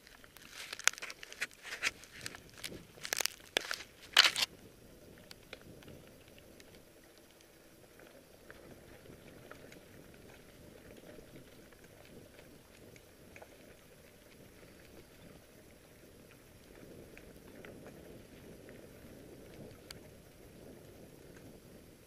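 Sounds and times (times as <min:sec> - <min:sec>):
tyre noise on dirt: 0:00.0 - 0:04.5
gravel ticking: 0:00.0 - 0:21.8.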